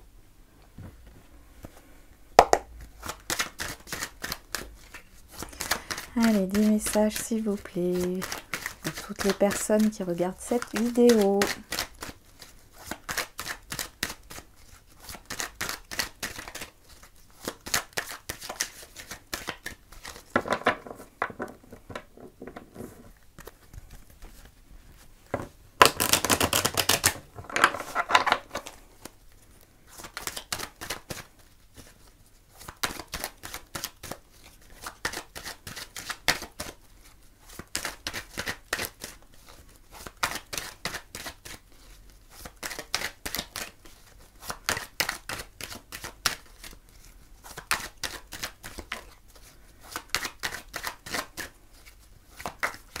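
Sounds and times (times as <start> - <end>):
cards being shuffled: 2.4 - 53.0.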